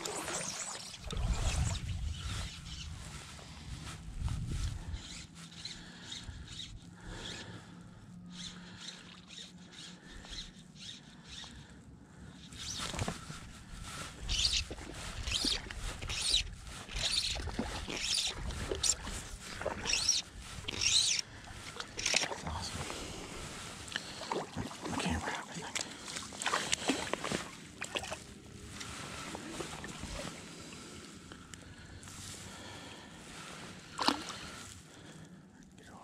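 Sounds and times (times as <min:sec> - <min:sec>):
faint water sounds: 0:00.0 - 0:06.1, 0:11.1 - 0:36.0.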